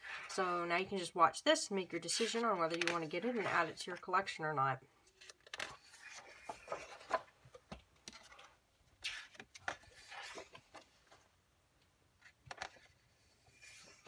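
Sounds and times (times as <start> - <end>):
paper pages rustling: 2.1 - 3.7, 5.1 - 7.3, 8.0 - 11.2.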